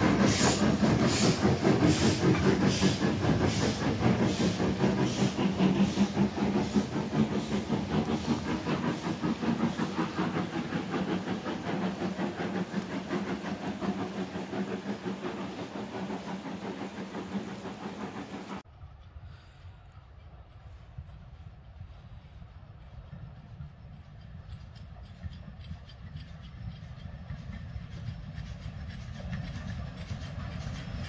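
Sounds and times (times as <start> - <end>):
hissing steam: 0.0 - 18.6, 26.3 - 31.0
steam locomotive chuffing: 0.0 - 31.0.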